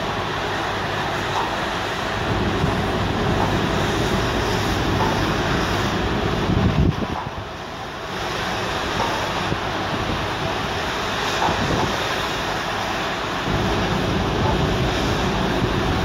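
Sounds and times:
rushing churned sea water: 0:00.0 - 0:16.0
wind buffeting microphone: 0:02.1 - 0:07.7, 0:08.8 - 0:12.3.

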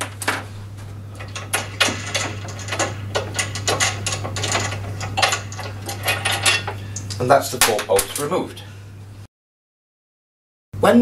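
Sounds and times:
metal clicks and rattles: 0:00.0 - 0:08.4
steady low hum: 0:00.0 - 0:09.3.

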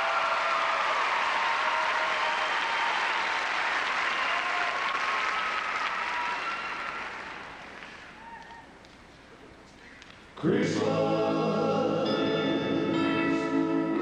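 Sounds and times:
large audience applauding: 0:00.0 - 0:08.7.

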